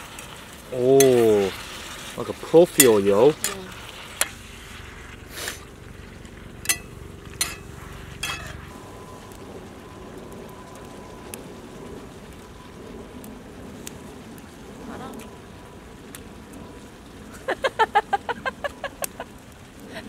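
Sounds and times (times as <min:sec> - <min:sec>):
food sizzling in skillet: 0:00.0 - 0:09.8
utensil tapping pan: 0:02.7 - 0:03.6, 0:06.6 - 0:08.6.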